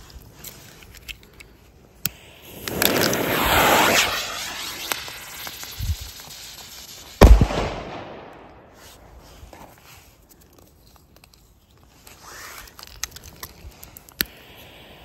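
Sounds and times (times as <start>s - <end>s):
firecracker sparks hissing: 1.8s - 9.8s, 12.1s - 15.0s
firecracker bang: 2.5s - 5.7s, 7.2s - 8.8s.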